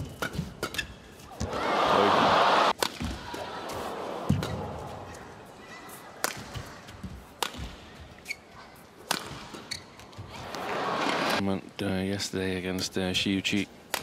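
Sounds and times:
indoor crowd hum: 0:00.0 - 0:14.0
badminton racket hitting shuttlecock: 0:07.4 - 0:07.8, 0:09.0 - 0:09.7.

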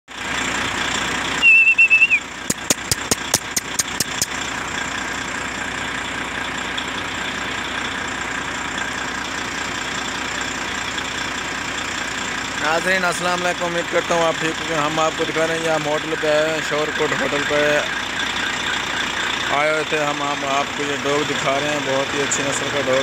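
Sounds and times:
vehicle engines humming: 0:00.1 - 0:23.0
wavering high whistle: 0:01.4 - 0:04.3
run of sharp clicks: 0:02.0 - 0:04.4.

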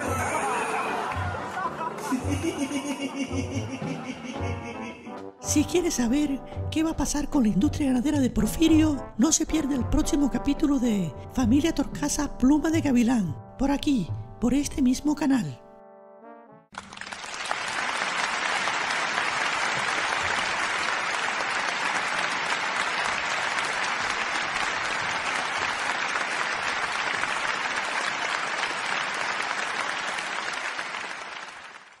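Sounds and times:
crowd applauding: 0:00.0 - 0:03.1, 0:16.7 - 0:32.0.

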